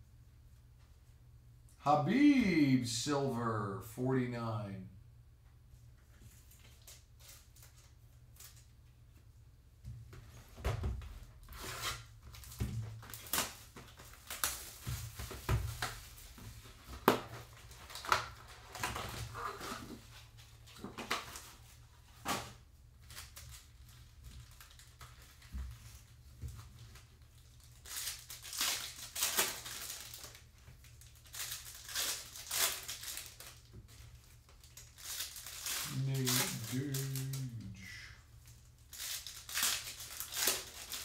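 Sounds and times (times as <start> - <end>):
foil packs crinkling: 11.4 - 37.6, 38.4 - 41.0.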